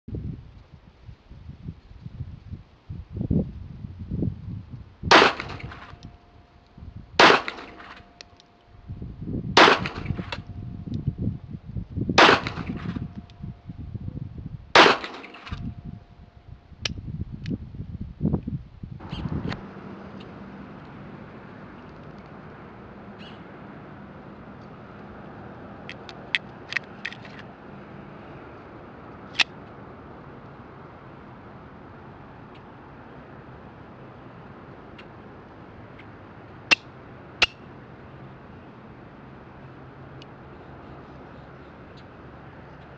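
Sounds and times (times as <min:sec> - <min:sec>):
pistol shots: 0:05.1 - 0:05.8, 0:07.2 - 0:08.0, 0:09.6 - 0:10.4, 0:12.2 - 0:12.9, 0:14.8 - 0:15.6.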